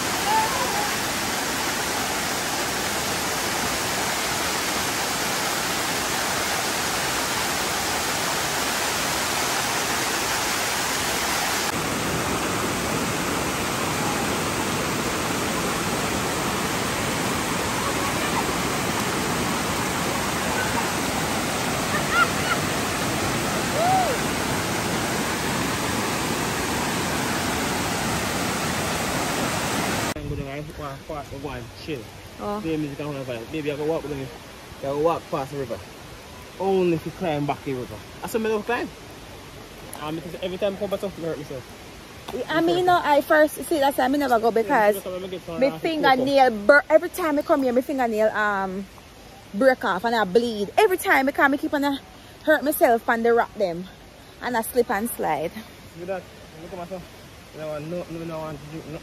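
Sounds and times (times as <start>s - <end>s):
water churning into a pool: 0.0s - 30.2s
waterfall rushing: 0.0s - 59.0s.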